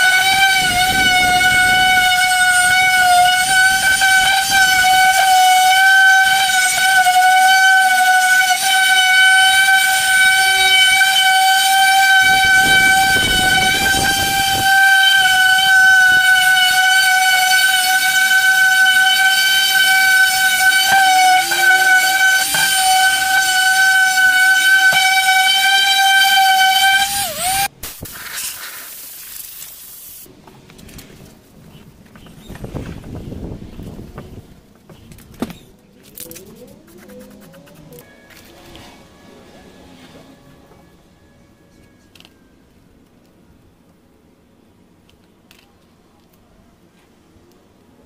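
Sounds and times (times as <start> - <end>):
angle grinder whining: 0.0 - 27.7.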